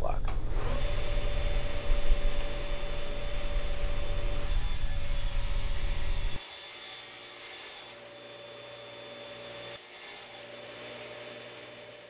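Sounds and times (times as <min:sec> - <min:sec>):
steady hum: 0:00.3 - 0:06.4
table saw cutting wood: 0:00.6 - 0:12.0.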